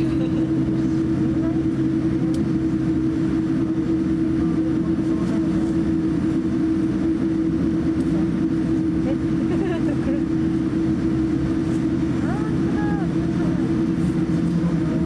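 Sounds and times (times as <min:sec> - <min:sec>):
airplane cabin hum: 0:00.0 - 0:15.0.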